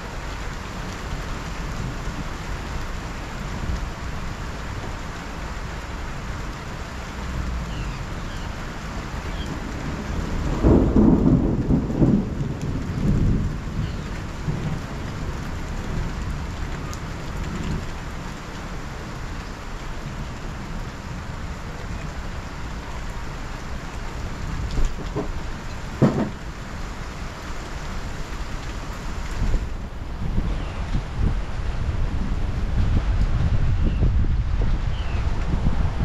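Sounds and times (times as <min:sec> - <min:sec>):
heavy rain: 0:00.0 - 0:36.0
thunder rumbling: 0:09.0 - 0:18.1, 0:29.2 - 0:36.0
short sharp thumps: 0:26.0 - 0:26.4.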